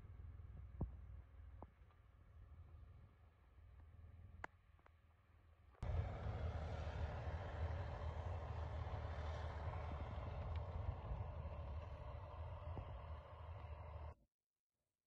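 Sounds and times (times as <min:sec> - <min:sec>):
diesel engine running: 0:05.8 - 0:14.2.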